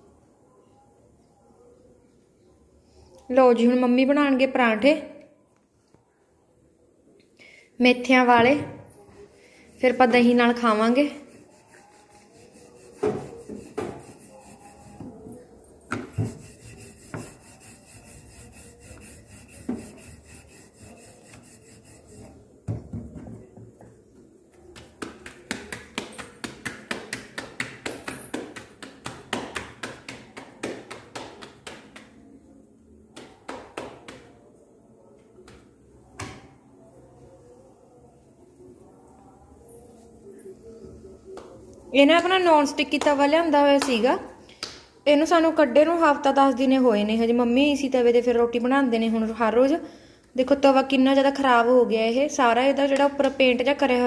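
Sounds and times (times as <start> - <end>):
rolling pin rolling dough: 10.1 - 23.0
hands patting dough: 24.6 - 32.2.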